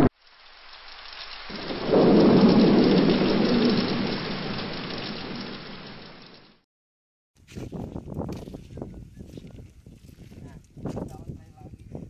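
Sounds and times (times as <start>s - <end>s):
rain hiss: 0.0s - 6.6s
thunder rumble: 1.2s - 6.6s.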